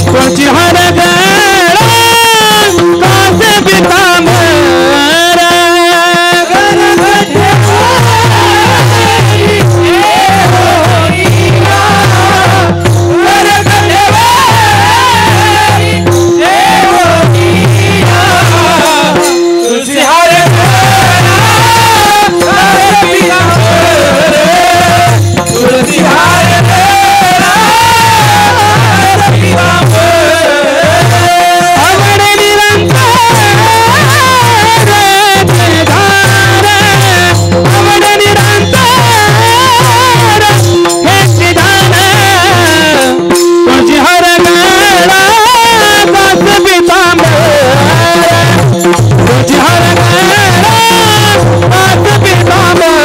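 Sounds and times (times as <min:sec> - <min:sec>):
man singing long held notes: 0:00.0 - 0:53.0
drum strokes with sliding bass: 0:06.5 - 0:19.6.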